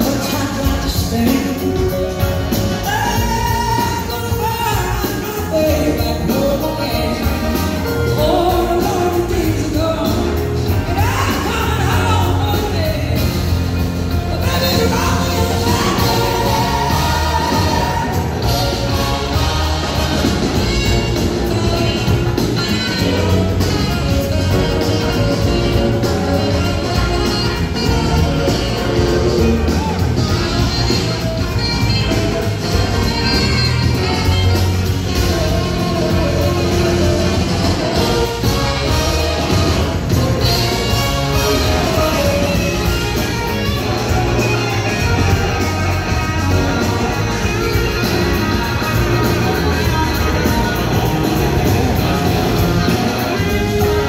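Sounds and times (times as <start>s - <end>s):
live rock band with horns: 0.0s - 54.0s.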